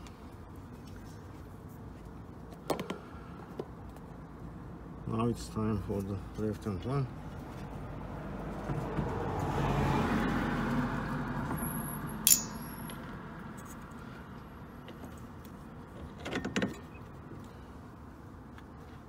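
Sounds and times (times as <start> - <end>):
passing vehicle: 5.4 - 16.0.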